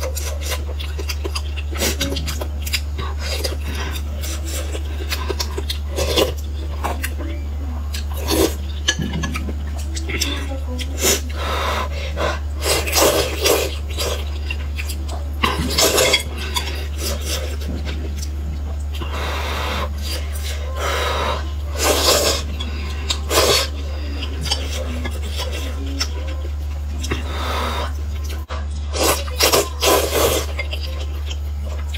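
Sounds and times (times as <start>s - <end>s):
steady low hum: 0.0s - 31.9s
noodles being slurped: 8.0s - 31.9s.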